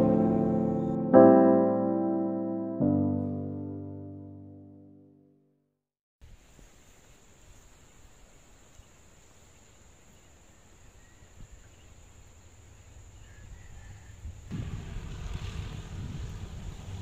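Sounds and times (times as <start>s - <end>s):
faint bird chirps: 7.5s - 14.2s
wind rumble on microphone: 12.8s - 17.0s.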